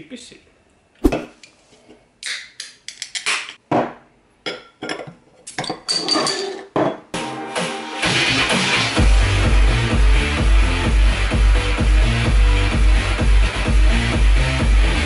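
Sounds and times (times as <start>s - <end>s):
cans and bottle clinking on desk: 4.5s - 7.0s.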